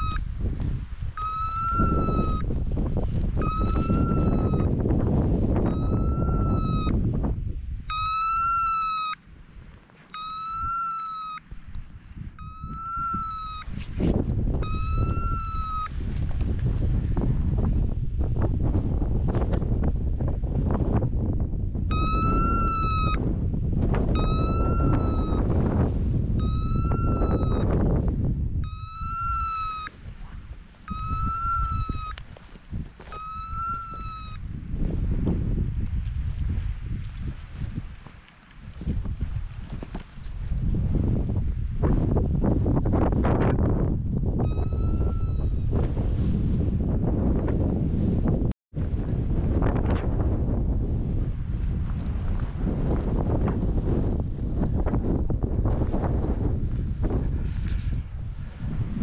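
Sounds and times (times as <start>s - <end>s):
beeper collar long beeps: 0.0s - 0.2s, 1.2s - 2.4s, 3.4s - 4.7s, 5.6s - 6.9s, 7.9s - 9.2s, 10.1s - 11.4s, 12.4s - 13.6s, 14.6s - 15.9s, 21.9s - 23.2s, 24.2s - 25.5s, 26.4s - 27.7s, 28.6s - 29.9s, 30.9s - 32.2s, 33.1s - 34.4s, 44.4s - 45.6s
wind rumble on microphone: 0.0s - 59.0s.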